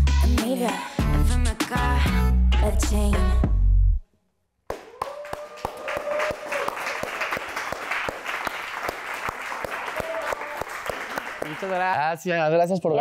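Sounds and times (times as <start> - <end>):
person whooping: 4.7 - 7.0, 9.8 - 10.6
people clapping and cheering: 4.7 - 12.2.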